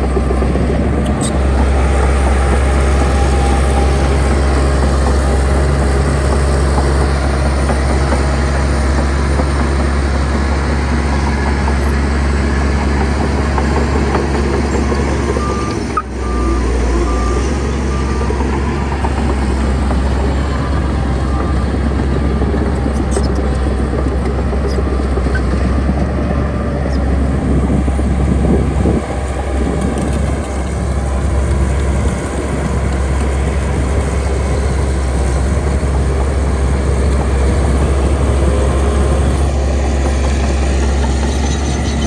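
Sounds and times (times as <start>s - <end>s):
heavy diesel engines running: 0.0s - 42.0s
reversing alarm beeping: 15.3s - 19.2s.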